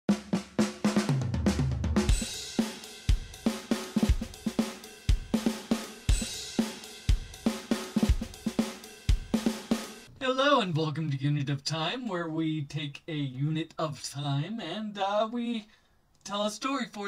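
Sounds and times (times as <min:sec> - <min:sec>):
snare and hi-hat hits: 0:00.1 - 0:10.1.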